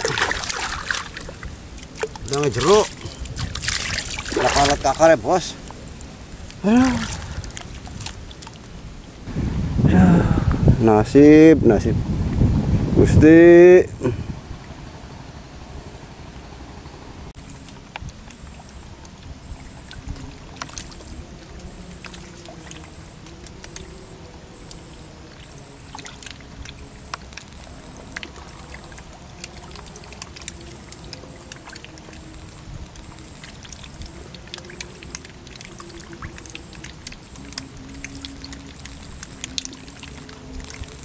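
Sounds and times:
water trickling and bubbling: 0:00.0 - 0:09.3, 0:17.4 - 0:41.0.

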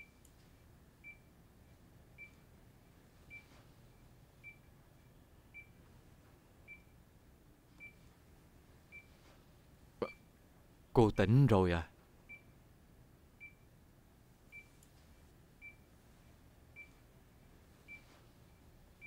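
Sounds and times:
patient monitor beeps: 0:00.0 - 0:07.0, 0:07.7 - 0:08.2, 0:08.8 - 0:09.3, 0:10.0 - 0:10.3, 0:12.2 - 0:12.6, 0:13.4 - 0:13.7, 0:14.4 - 0:19.0.

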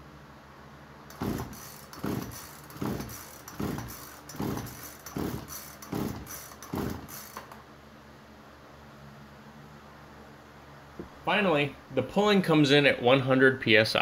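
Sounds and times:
chainsaw recoil starter pulls: 0:01.1 - 0:07.6.

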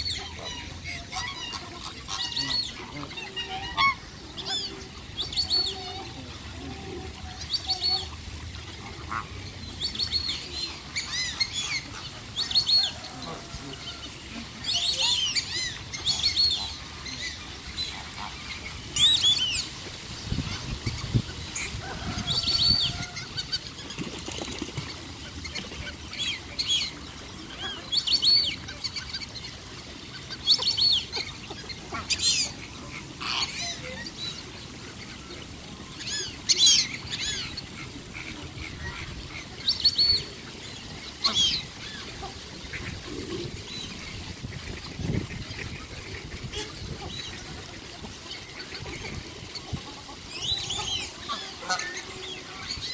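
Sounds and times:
fountain splashing: 0:00.0 - 0:52.9.

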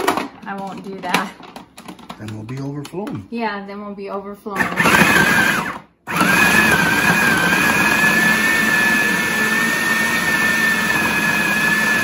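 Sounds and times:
food processor motor whirring: 0:04.6 - 0:12.0.

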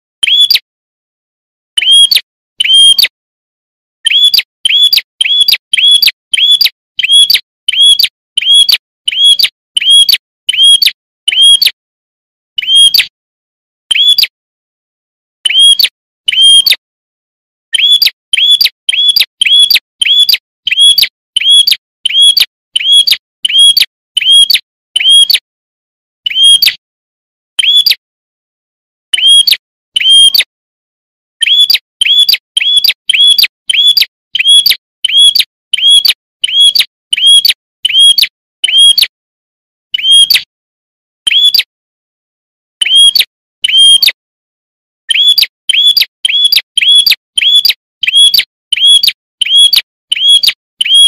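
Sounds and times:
bird chirping: 0:00.2 - 0:00.6, 0:01.8 - 0:03.1, 0:04.0 - 0:11.8, 0:12.6 - 0:13.1, 0:13.9 - 0:14.3, 0:15.4 - 0:16.8, 0:17.7 - 0:25.4, 0:26.2 - 0:26.8, 0:27.6 - 0:28.0, 0:29.1 - 0:30.4, 0:31.4 - 0:39.1, 0:39.9 - 0:40.5, 0:41.3 - 0:41.7, 0:42.8 - 0:44.2, 0:45.1 - 0:51.0.

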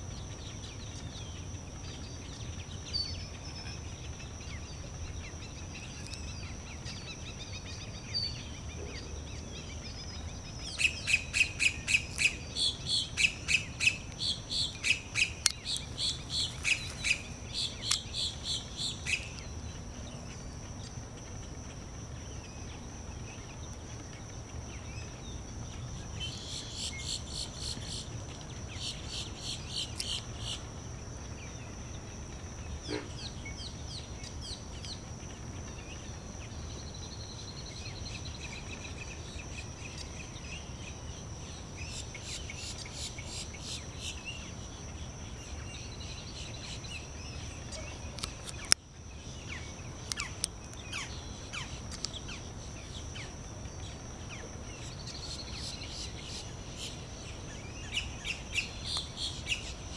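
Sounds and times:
bird chirping: 0:00.2 - 0:21.0, 0:24.7 - 0:30.7, 0:35.8 - 0:59.9
high-pitched insect buzz: 0:10.8 - 0:19.5.

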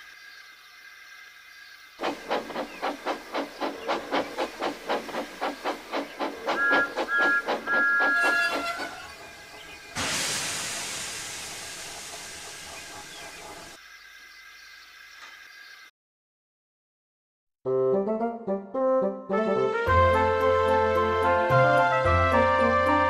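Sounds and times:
steam hiss: 0:02.0 - 0:13.8
steam locomotive chuffing: 0:02.0 - 0:13.8
two-note train whistle: 0:06.5 - 0:09.2.

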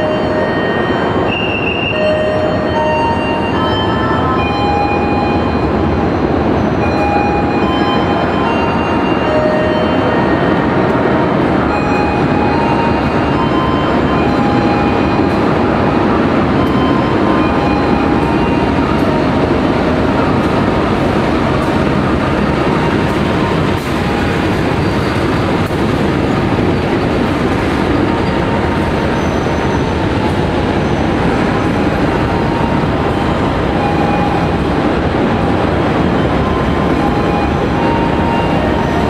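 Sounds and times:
train wheel squeal: 0:00.0 - 0:10.7, 0:22.3 - 0:39.0
diesel locomotive passing: 0:00.0 - 0:39.0
train coaches rolling by: 0:00.0 - 0:39.0.

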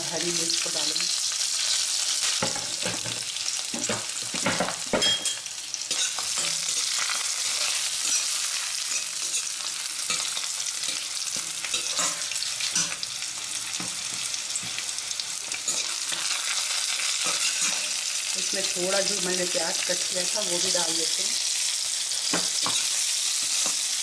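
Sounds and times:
spices sizzling in oil: 0:00.0 - 0:24.0.

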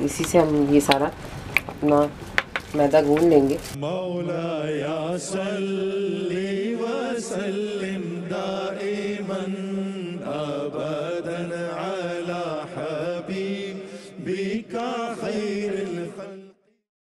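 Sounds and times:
chanted wavering vocal melody: 0:03.2 - 0:16.7.

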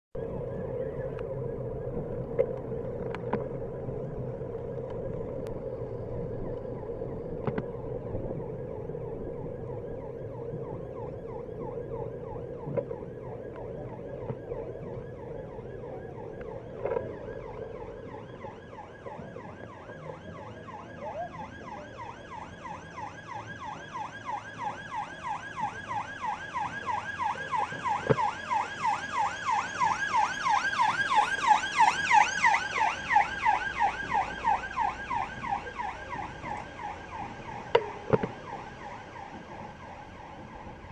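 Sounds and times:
ambulance siren wailing: 0:00.2 - 0:40.9.

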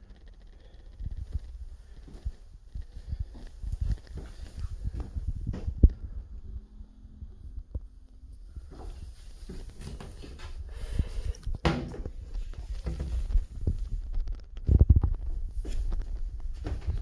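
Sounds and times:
footsteps: 0:01.0 - 0:06.0, 0:08.6 - 0:17.0.

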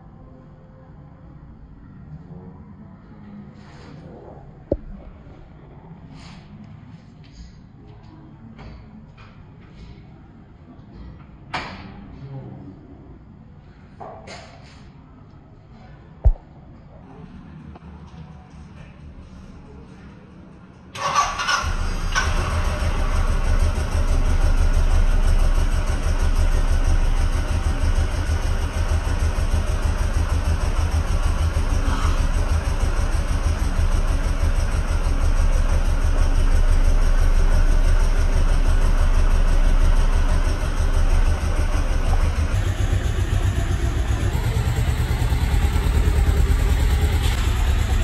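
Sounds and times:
motorcycle engine idling: 0:21.0 - 0:48.0.

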